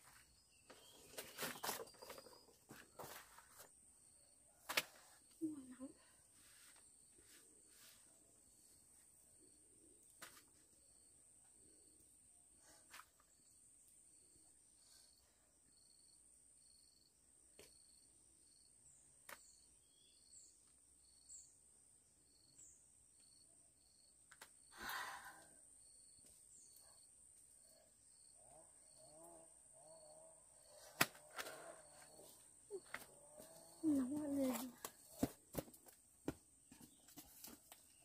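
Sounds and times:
faint wavering animal calls: 27.6 - 34.7.

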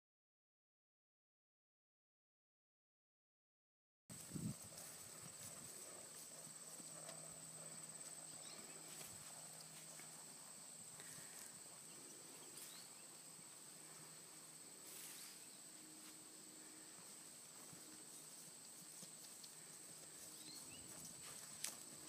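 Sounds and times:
hoofbeats on grass: 4.1 - 12.9, 14.8 - 22.0.

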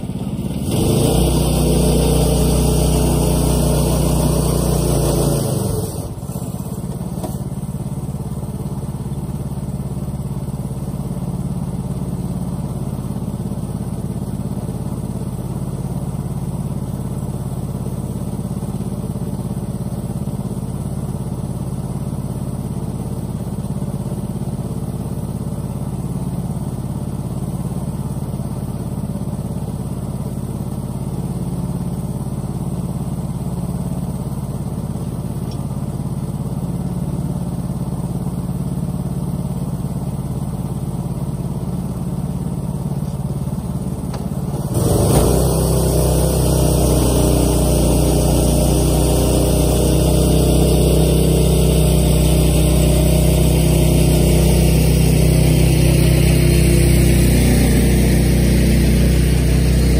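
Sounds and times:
pickup engine revving and idling: 0.0 - 7.5, 44.2 - 59.9
tires spinning in mud: 0.0 - 7.5, 43.8 - 59.9.

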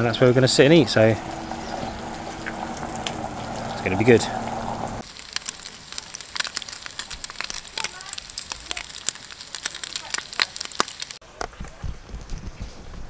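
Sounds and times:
bacon crackling in a pan: 5.0 - 11.2.

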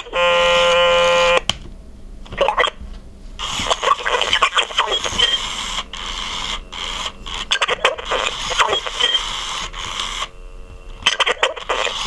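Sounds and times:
harsh glitchy electronic noise: 3.4 - 10.3, 11.0 - 12.0
warped squeaky toy voice: 3.6 - 5.4, 7.5 - 9.2, 11.1 - 12.0.

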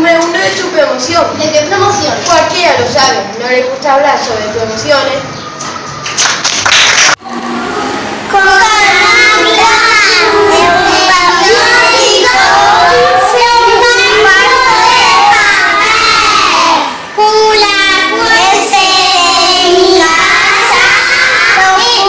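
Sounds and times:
young children singing: 7.2 - 22.0.

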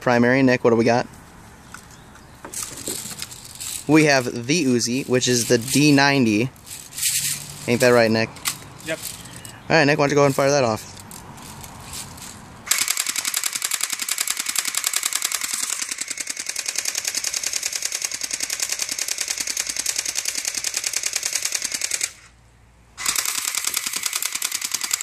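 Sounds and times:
airsoft gun firing full auto: 12.7 - 22.3, 23.0 - 25.0.

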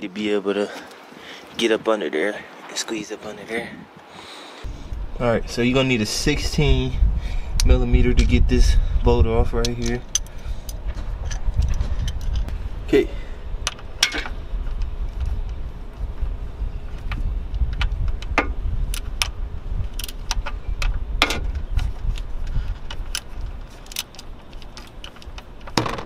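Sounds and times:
low rumble: 4.7 - 23.7.

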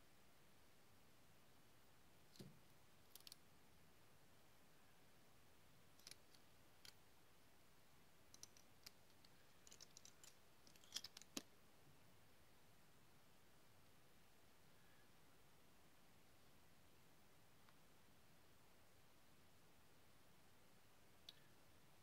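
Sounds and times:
tiny metal parts clicking: 3.1 - 3.4, 6.0 - 7.0, 8.3 - 11.4.

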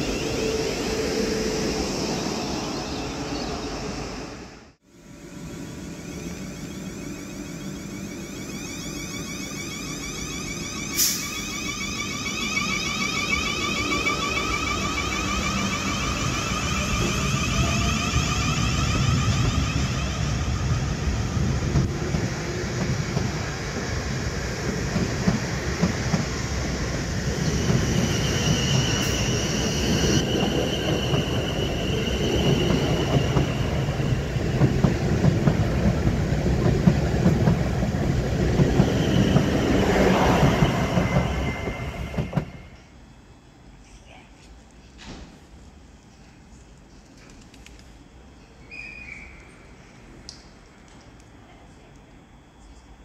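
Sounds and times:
train wheels rumbling on rail: 5.2 - 43.0
high wheel squeal: 5.7 - 21.6, 27.0 - 34.9, 38.4 - 42.9.

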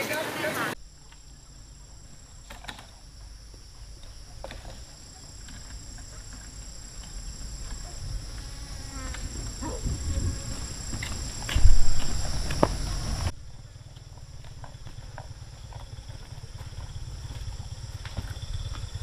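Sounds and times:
insect chorus: 0.0 - 19.0
low rumble: 9.2 - 19.0.

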